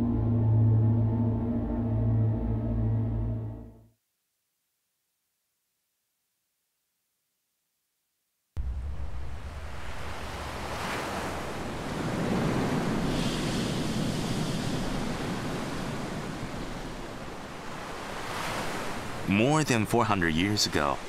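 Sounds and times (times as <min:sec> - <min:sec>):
ocean waves breaking on beach: 0:08.8 - 0:21.0.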